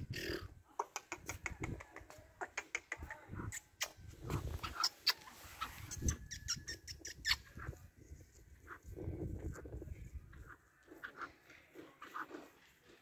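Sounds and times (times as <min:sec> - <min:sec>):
francolin clucking clicks: 0:00.8 - 0:04.0.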